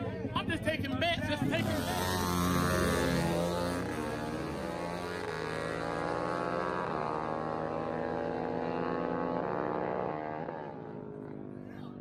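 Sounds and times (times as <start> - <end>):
dirt bike engine revving: 1.3 - 11.6
four-wheeler engine revving: 1.3 - 11.7.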